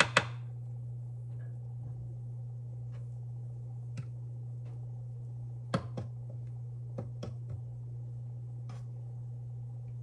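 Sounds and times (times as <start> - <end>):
kitchen knocks and clicks: 0.0 - 0.4
steady low hum: 0.0 - 10.0.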